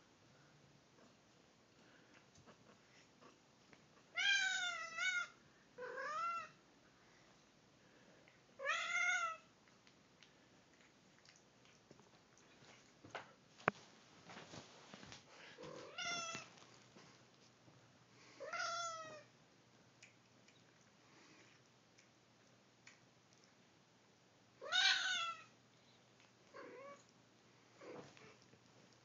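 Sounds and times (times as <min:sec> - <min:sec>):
cat meowing: 0:04.1 - 0:06.6, 0:24.6 - 0:25.5.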